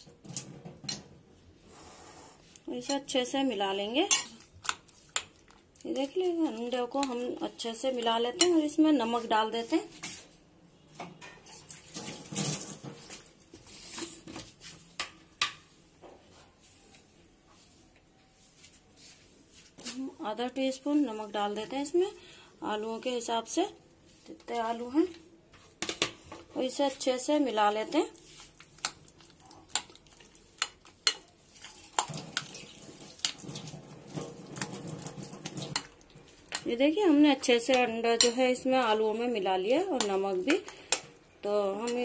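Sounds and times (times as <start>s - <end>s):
batter squelching: 26.7s - 38.6s
wet scraping in a glass bowl: 27.8s - 36.0s.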